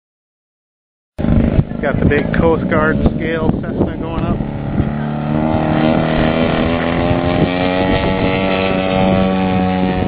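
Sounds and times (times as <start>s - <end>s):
model plane engine rising: 1.2s - 10.0s.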